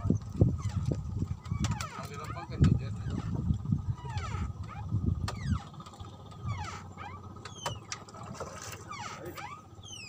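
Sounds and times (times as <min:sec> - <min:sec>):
fishing reel whirring and squealing: 0:00.0 - 0:10.0.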